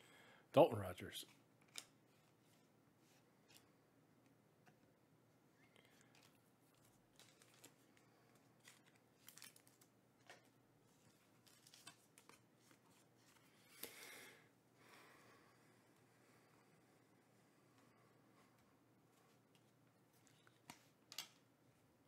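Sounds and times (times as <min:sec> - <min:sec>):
trading cards rustling and clicking: 0:01.3 - 0:02.7, 0:05.7 - 0:14.1, 0:18.4 - 0:21.5.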